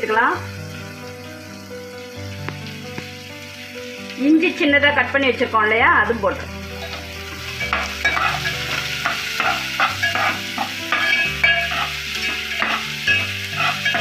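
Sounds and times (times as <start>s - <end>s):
onions sizzling in oil: 0.0s - 14.0s
metal spoon scraping pot: 7.6s - 14.0s.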